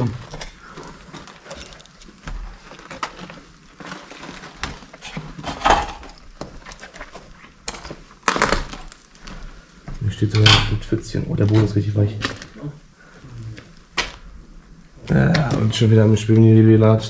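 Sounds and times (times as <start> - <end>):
debris clicking and knocking: 0.0 - 9.2
footsteps crunching over rubble: 0.0 - 16.6.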